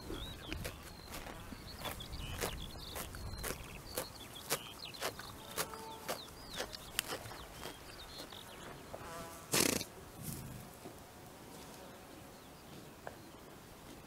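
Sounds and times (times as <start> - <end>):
small birds chirping: 0.0 - 10.7
pony tearing grass: 0.5 - 8.3, 9.5 - 10.6.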